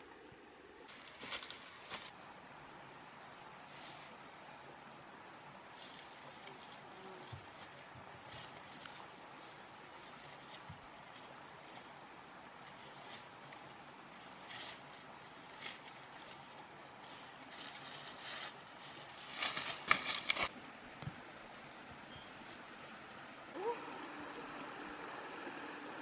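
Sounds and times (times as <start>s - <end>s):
footsteps through dry leaves: 0.9s - 2.2s, 14.2s - 20.5s
high insect drone: 0.9s - 26.0s.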